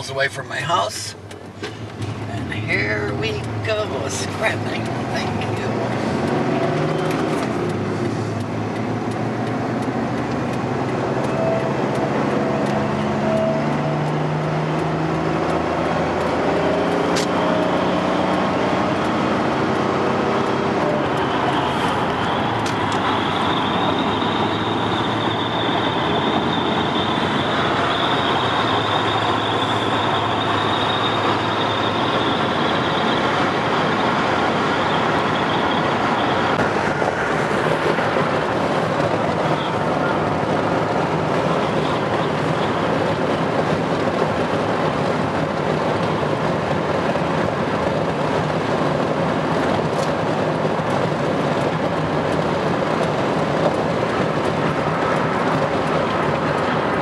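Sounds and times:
car engine accelerating: 1.2 - 57.0
tyre and wind noise: 30.8 - 57.0.

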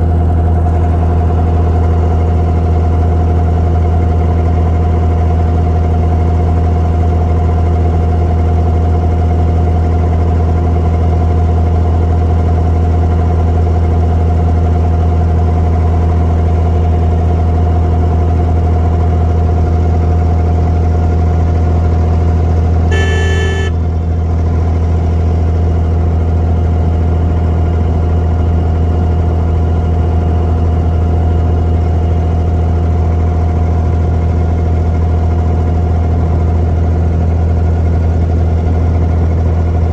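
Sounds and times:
boat diesel engine droning: 0.0 - 39.9
brief tone: 22.9 - 23.8.

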